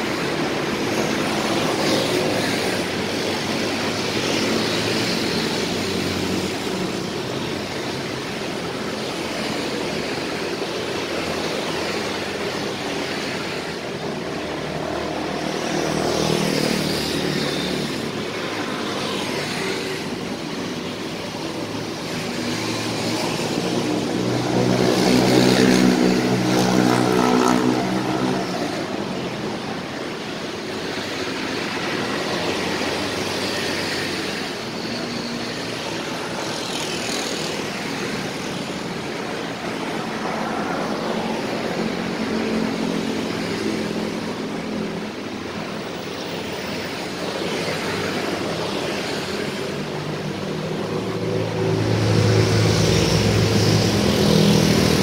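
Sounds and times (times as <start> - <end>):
cars passing: 0.0 - 55.0
motorbikes passing: 0.0 - 55.0
car passing close: 47.7 - 55.0.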